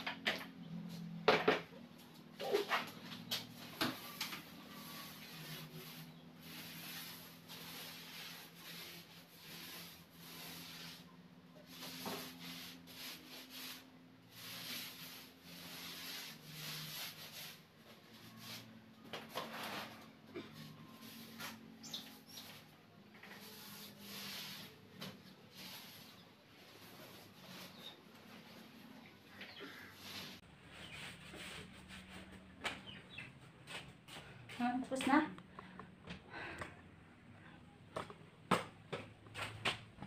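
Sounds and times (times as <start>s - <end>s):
paint roller rasping on wall: 2.1s - 32.4s.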